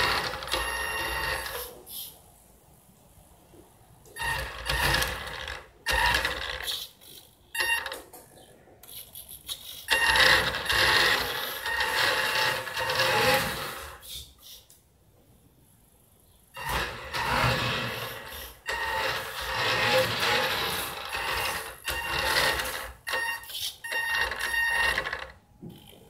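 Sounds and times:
toy car electric motor whining: 0.0 - 2.1, 4.2 - 7.7, 8.8 - 14.6, 16.6 - 25.4.

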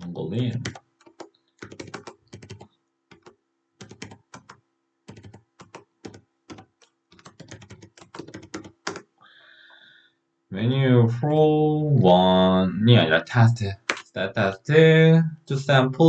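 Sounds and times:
computer keyboard typing: 0.4 - 9.1.

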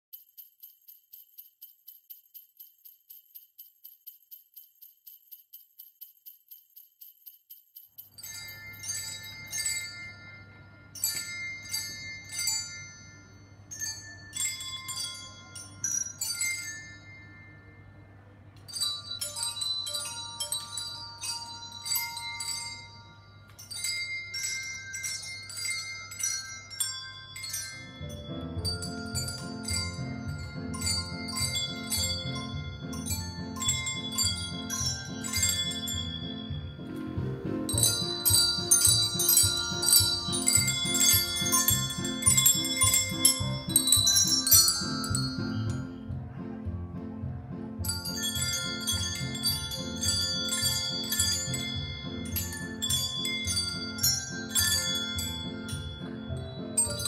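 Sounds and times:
small bells jingling: 0.0 - 46.4, 47.3 - 57.0
children ringing hand bells: 0.1 - 46.4, 47.3 - 57.0.

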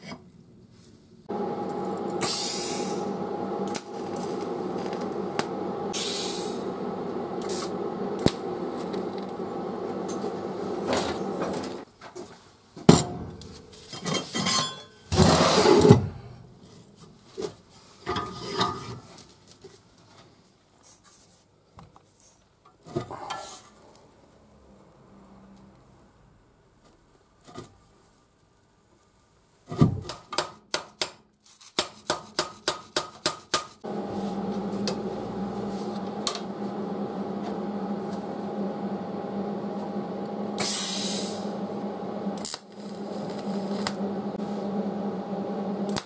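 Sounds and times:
welding arc buzzing: 1.3 - 11.8, 33.8 - 46.0.

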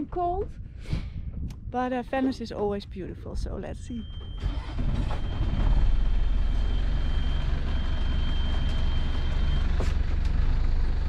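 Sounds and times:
wind and water noise: 0.0 - 3.8
boat engine rumbling: 0.0 - 11.0.

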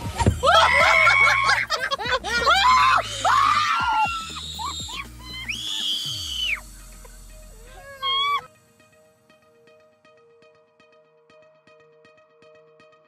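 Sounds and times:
girl screaming: 0.4 - 6.6, 7.6 - 8.5.

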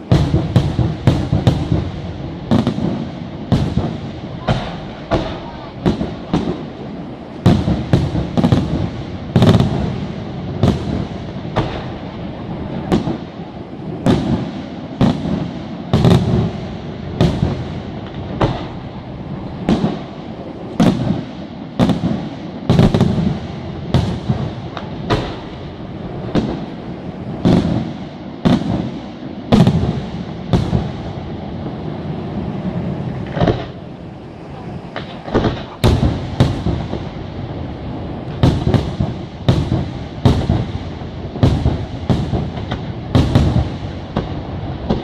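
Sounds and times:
firework shells bursting: 32.6 - 34.0, 34.8 - 45.0.

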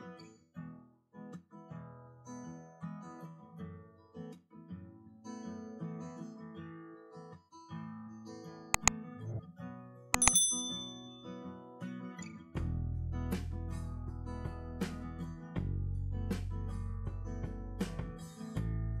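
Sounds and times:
mouse click sound effect: 10.2 - 10.6.

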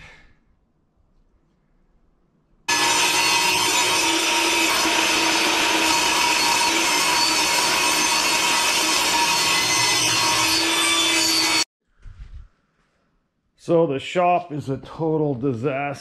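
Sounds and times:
table saw cutting plywood: 2.7 - 11.7.

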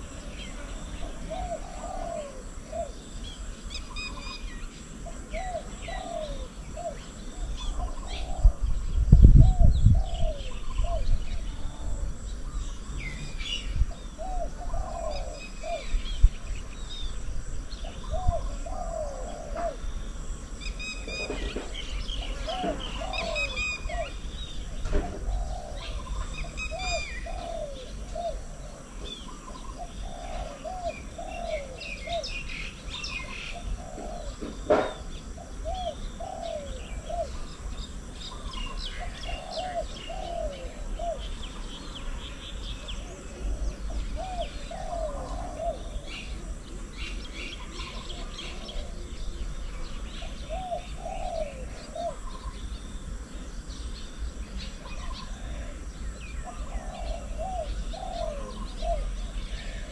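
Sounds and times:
dove cooing: 0.0 - 53.2, 54.4 - 59.9
small birds chirping: 0.0 - 59.9
sharp knock: 34.7 - 35.0.

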